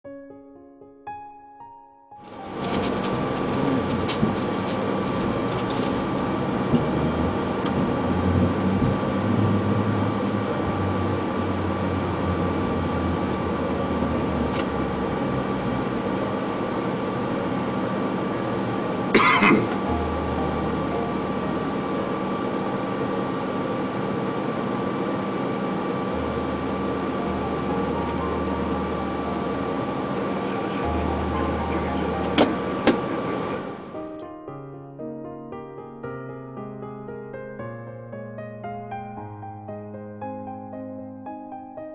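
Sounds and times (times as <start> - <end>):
airliner engines and air conditioning: 2.2 - 34.2
thin steady whine: 2.2 - 34.2.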